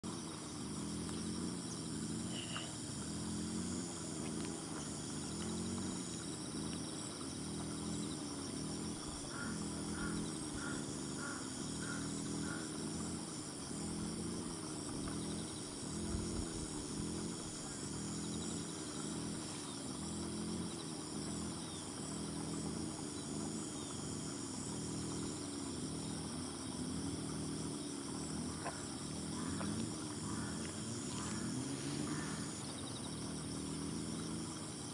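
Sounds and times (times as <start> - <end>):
insects trilling: 0.0 - 34.9
low pulsing insect chorus: 0.0 - 34.9
evenly spaced calls: 28.6 - 32.7.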